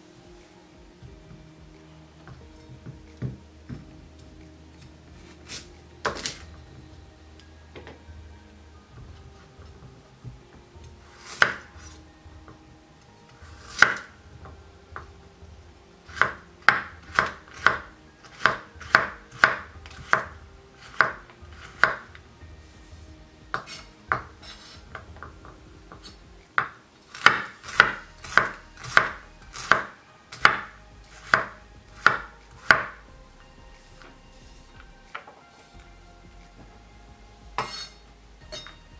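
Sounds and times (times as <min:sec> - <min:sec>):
knife chopping on wooden board: 0:11.2 - 0:11.7, 0:13.6 - 0:14.1, 0:16.1 - 0:20.3, 0:25.9 - 0:33.0.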